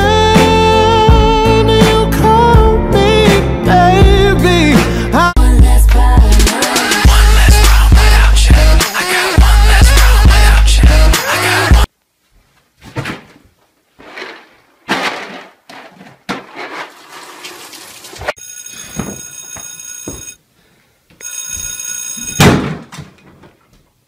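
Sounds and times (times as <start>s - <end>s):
scuffs and thumps: 12.4s - 16.5s
alarm clock ringing: 18.4s - 20.4s, 21.2s - 22.4s.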